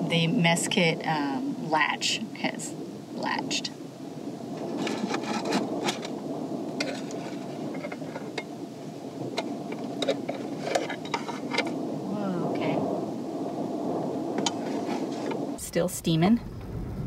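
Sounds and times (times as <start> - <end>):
fabric rubbing and rustling: 14.5 - 15.4.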